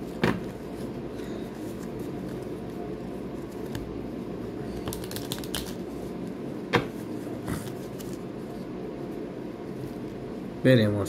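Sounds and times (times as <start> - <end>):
steady low hum: 0.0 - 11.0
playing cards being shuffled: 4.8 - 6.0, 7.6 - 8.3.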